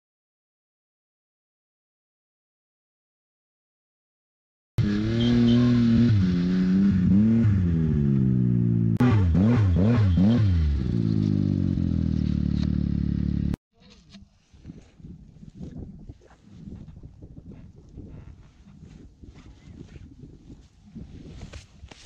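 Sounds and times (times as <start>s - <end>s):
snowmobile engine revving: 4.8s - 13.6s.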